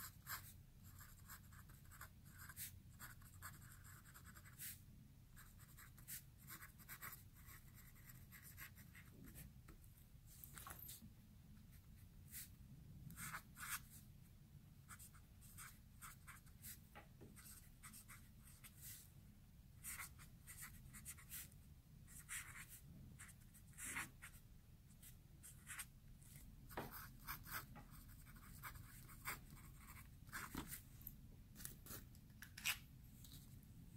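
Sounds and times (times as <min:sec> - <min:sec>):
fountain pen scratching on paper: 0:00.0 - 0:04.8, 0:05.4 - 0:09.5, 0:13.1 - 0:14.0, 0:14.9 - 0:16.8, 0:17.4 - 0:19.0, 0:19.8 - 0:24.4, 0:25.0 - 0:30.8
marker scratching on paper: 0:00.0 - 0:04.8, 0:05.4 - 0:09.5, 0:11.8 - 0:14.0, 0:14.9 - 0:19.1, 0:19.8 - 0:30.8.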